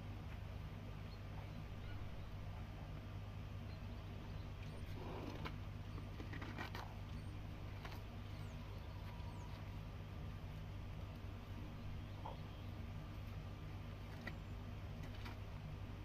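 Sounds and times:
steady low hum: 0:00.0 - 0:16.0
faint bird chirps: 0:01.0 - 0:02.6, 0:11.7 - 0:12.9.

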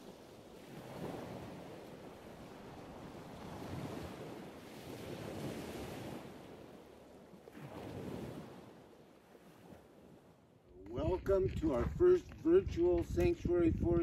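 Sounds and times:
ocean surf: 0:00.0 - 0:10.6
wind on microphone: 0:10.7 - 0:14.0.

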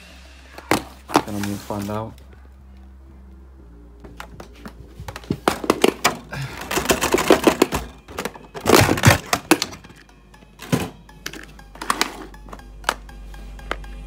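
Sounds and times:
background music: 0:00.0 - 0:14.0
hard plastic clattering: 0:04.2 - 0:12.3.

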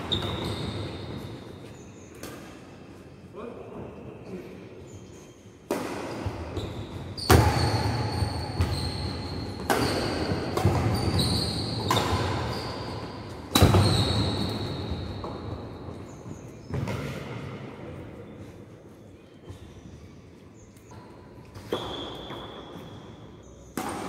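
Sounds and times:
shoes squeaking on wooden court: 0:00.0 - 0:03.2, 0:04.9 - 0:23.8
rackets hitting shuttlecock: 0:05.6 - 0:15.8, 0:21.4 - 0:24.0.

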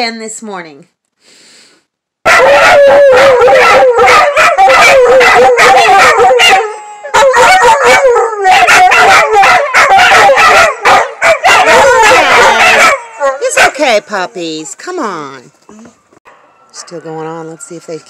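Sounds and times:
dogs howling: 0:02.3 - 0:13.9
dogs yipping and barking: 0:02.3 - 0:14.0
siren: 0:16.3 - 0:18.0.

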